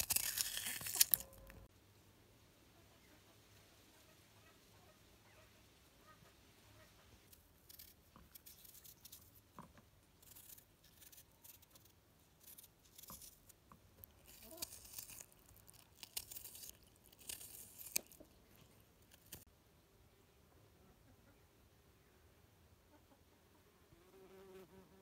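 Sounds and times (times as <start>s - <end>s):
dry rustling and crinkling: 0.0s - 1.7s, 7.6s - 19.5s.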